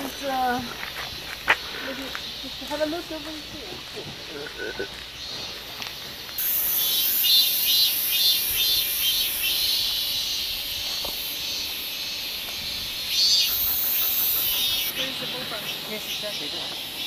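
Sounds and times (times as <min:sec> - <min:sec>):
insect shrilling: 0:06.4 - 0:17.0.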